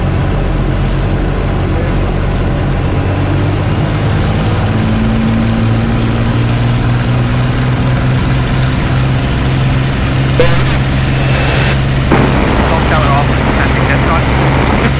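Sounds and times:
aircraft engine running: 0:00.0 - 0:14.9
higher steady tone: 0:10.3 - 0:12.7.

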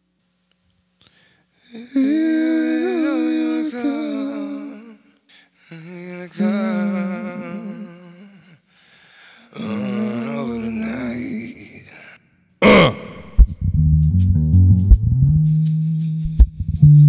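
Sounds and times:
person humming: 0:01.7 - 0:05.1, 0:05.7 - 0:08.6, 0:09.6 - 0:11.9, 0:12.6 - 0:13.5.

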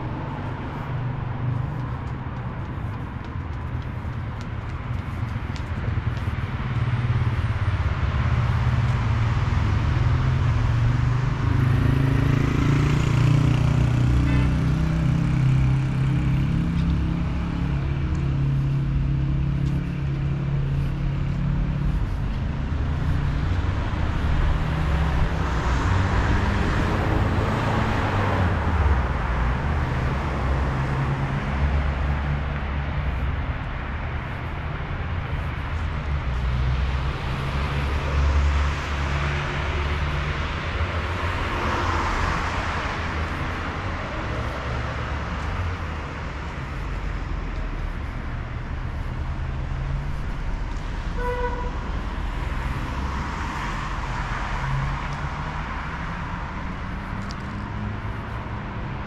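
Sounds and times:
road traffic rumble: 0:00.0 - 0:59.0
car horn toot: 0:14.2 - 0:14.6, 0:51.2 - 0:51.8.

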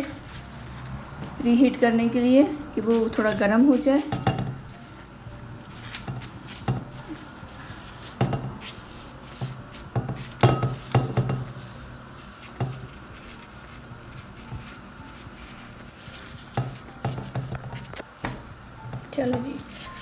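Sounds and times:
pastry sheets on metal tray: 0:00.0 - 0:20.0
brush and bowl knocking tray: 0:02.8 - 0:04.8, 0:05.8 - 0:07.2, 0:08.0 - 0:11.8, 0:12.4 - 0:20.0.

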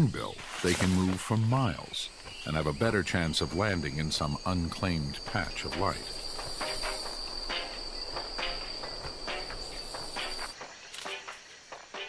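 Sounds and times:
high-pitched insect drone: 0:05.4 - 0:11.3.

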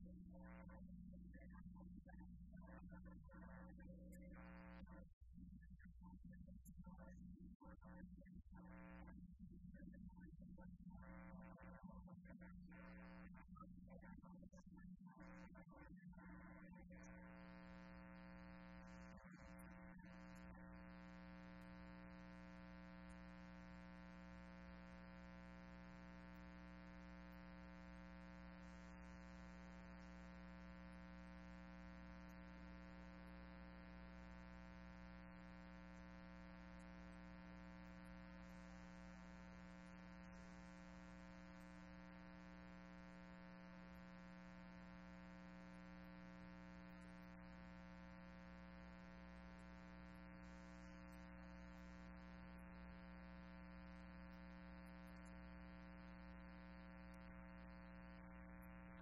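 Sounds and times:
steady electrical hum: 0:17.0 - 0:59.0.

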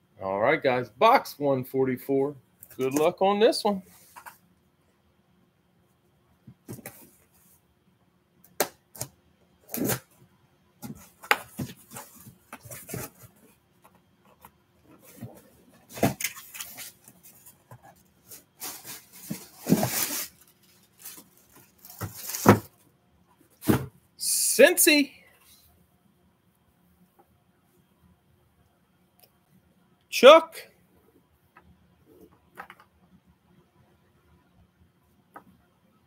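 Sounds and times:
plastic bag crinkling: 0:18.3 - 0:22.7
cardboard box being opened: 0:18.6 - 0:20.4.

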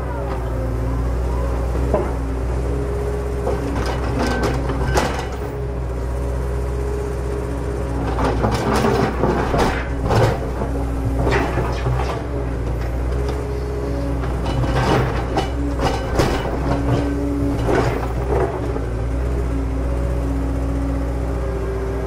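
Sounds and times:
gear clatter and scraping: 0:08.1 - 0:13.3.

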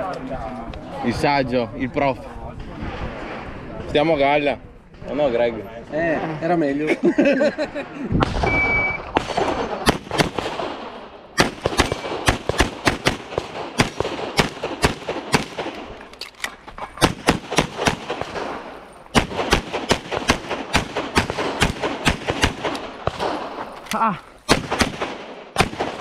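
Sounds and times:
pistol shots: 0:08.2 - 0:16.0, 0:17.0 - 0:23.7, 0:24.5 - 0:26.0
electronic timer beep: 0:08.5 - 0:09.1.

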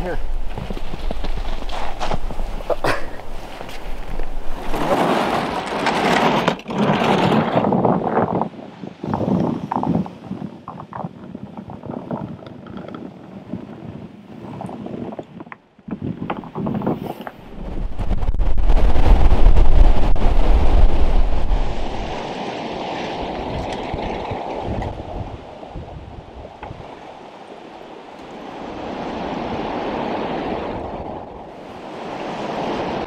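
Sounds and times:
sled dragged over snow: 0:00.0 - 0:09.9
wind gusts buffeting microphone: 0:00.0 - 0:33.0
footsteps crunching in snow: 0:00.2 - 0:05.4.

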